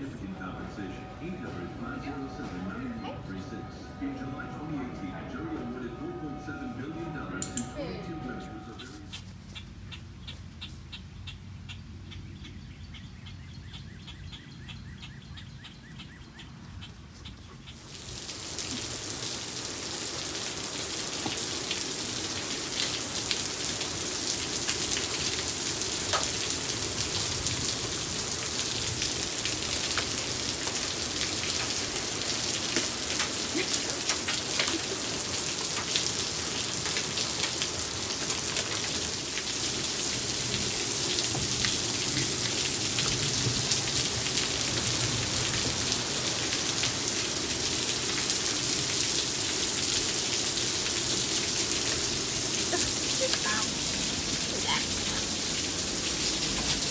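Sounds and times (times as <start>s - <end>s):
heavy rain on wooden deck: 0.0s - 9.1s, 17.5s - 56.9s
faint birdsong: 8.2s - 17.9s.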